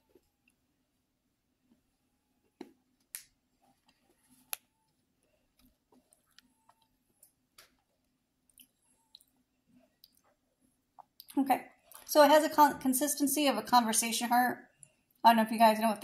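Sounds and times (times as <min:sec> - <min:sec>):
person chewing candy: 0:05.6 - 0:12.1.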